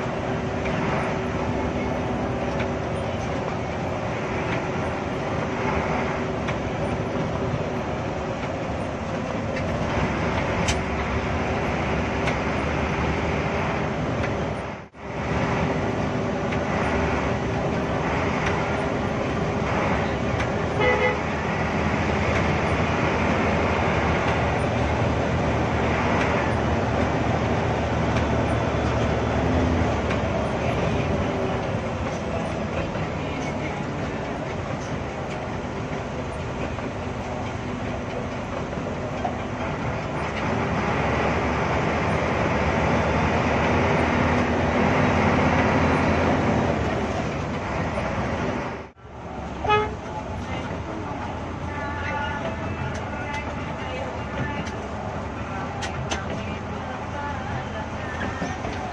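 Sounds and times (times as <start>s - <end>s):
bus engine hum: 0.0s - 58.9s
road noise: 0.0s - 58.9s
short horn toot: 49.6s - 50.0s.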